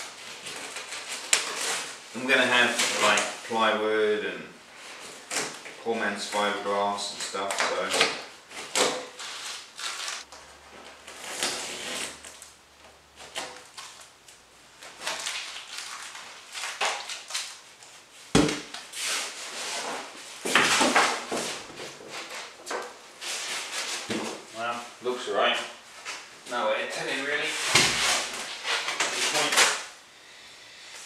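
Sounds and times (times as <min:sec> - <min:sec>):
tape ripping: 0:00.1 - 0:02.0, 0:07.1 - 0:10.3, 0:11.0 - 0:12.6, 0:13.2 - 0:21.3, 0:27.5 - 0:29.9.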